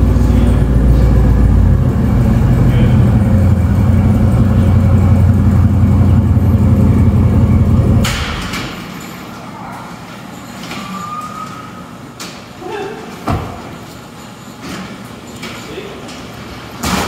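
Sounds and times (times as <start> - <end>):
car engine idling: 0.0 - 8.9.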